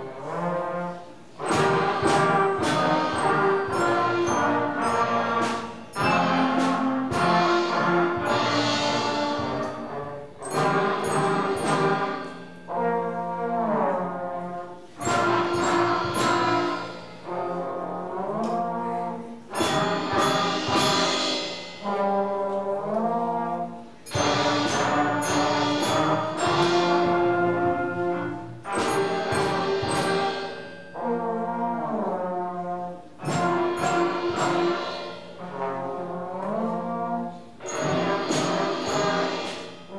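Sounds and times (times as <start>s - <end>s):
concert band playing: 0.0s - 39.9s
trombone glissando: 0.1s - 39.9s
drum and cymbal hits: 0.2s - 13.7s, 14.8s - 18.8s, 19.4s - 39.9s.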